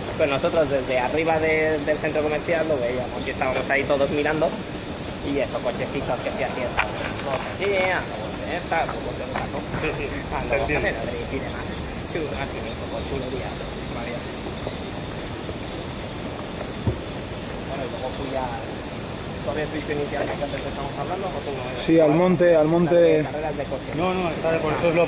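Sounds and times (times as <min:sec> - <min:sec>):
cicadas buzzing: 0:00.0 - 0:25.0.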